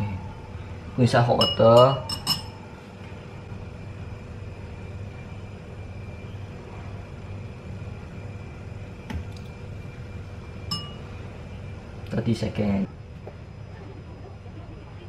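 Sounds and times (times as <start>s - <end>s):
low room hum: 0.0s - 15.0s
kitchenware clinking: 1.4s - 2.7s, 10.7s - 11.1s.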